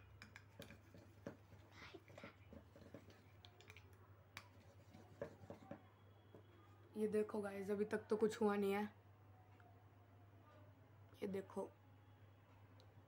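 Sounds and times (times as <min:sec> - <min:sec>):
pencil scratching on metal can lid: 0:00.6 - 0:03.3, 0:04.4 - 0:05.8.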